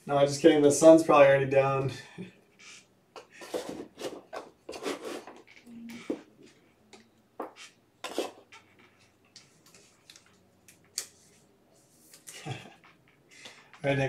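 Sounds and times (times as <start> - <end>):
cards sliding and stacking: 2.6 - 6.2, 7.4 - 8.6.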